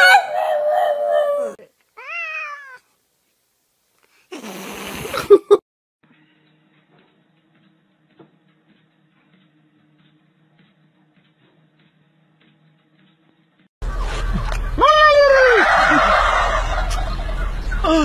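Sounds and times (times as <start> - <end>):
cat meowing: 2.0 - 2.9.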